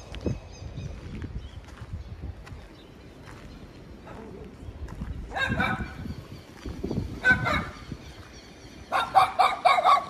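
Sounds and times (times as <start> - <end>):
dog yapping: 7.2 - 7.8, 8.9 - 10.0.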